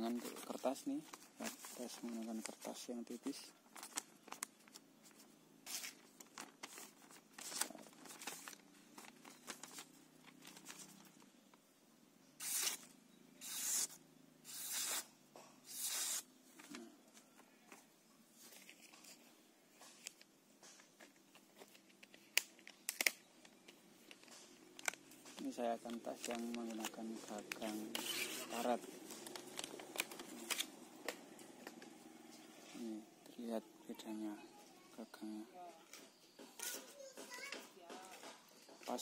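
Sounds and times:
knife slicing paper: 12.4 - 15.1, 15.7 - 16.3.

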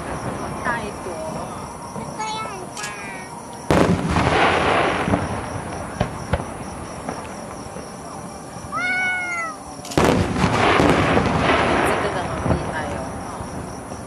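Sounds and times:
firework shells booming: 0.0 - 8.7, 9.8 - 14.0
firework sharp cracks: 2.0 - 8.0, 9.8 - 14.0.

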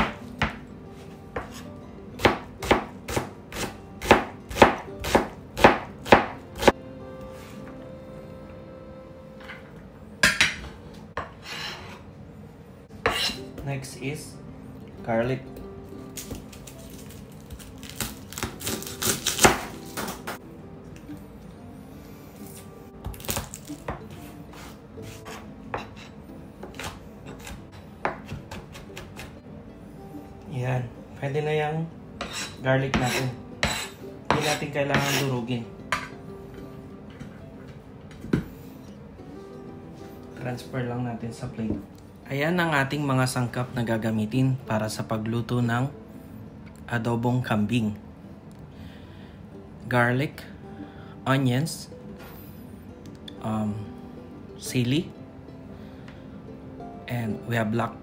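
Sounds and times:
knife chopping on cutting board: 1.4 - 1.6, 2.2 - 6.8, 18.3 - 20.4, 23.0 - 29.3, 32.2 - 35.3.

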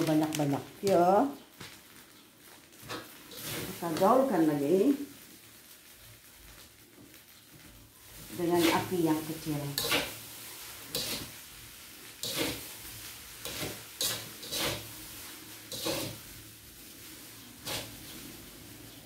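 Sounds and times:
spatula scraping rice in a wok: 2.7 - 4.6, 7.2 - 18.9.

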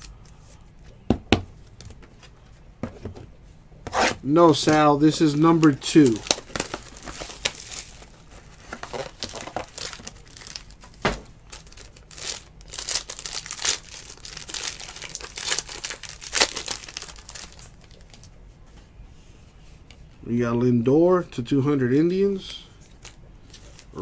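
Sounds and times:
foil wrapper crinkling and tearing: 5.2 - 10.9, 11.5 - 18.3.

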